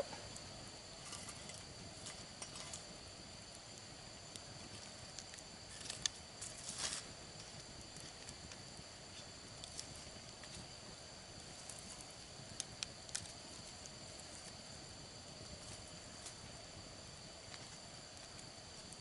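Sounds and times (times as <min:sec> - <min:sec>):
campfire crackling: 0:00.0 - 0:19.0.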